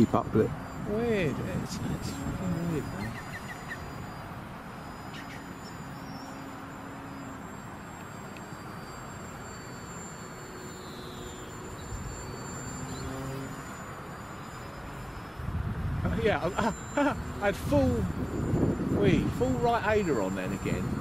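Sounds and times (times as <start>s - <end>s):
wind rumble on microphone: 0.0s - 5.2s, 15.0s - 21.0s
model plane motor whine: 0.0s - 21.0s.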